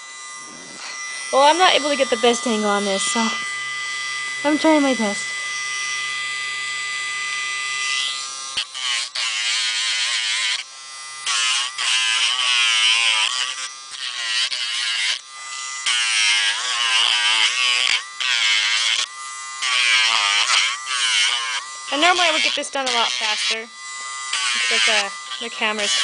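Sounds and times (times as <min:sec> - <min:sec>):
rotary tool motor whining: 0:00.0 - 0:26.0
gritty sanding of toenail: 0:19.7 - 0:26.0.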